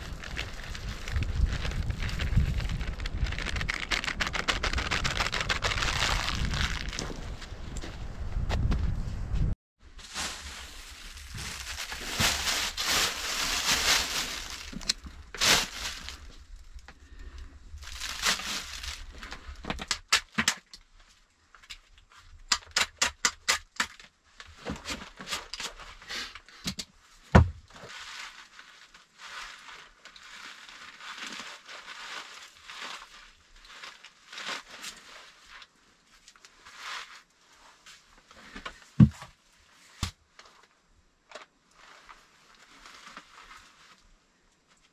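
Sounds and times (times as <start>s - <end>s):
aluminium foil crinkling: 0.0s - 7.4s, 10.0s - 17.2s, 17.8s - 22.2s, 27.8s - 37.3s.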